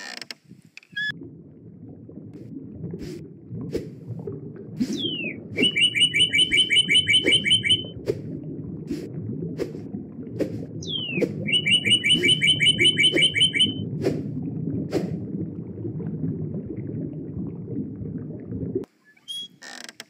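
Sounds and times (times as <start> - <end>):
fast bird chirps: 5.0 - 7.8, 10.8 - 13.8
falling whistle: 5.0 - 7.9, 10.8 - 13.8.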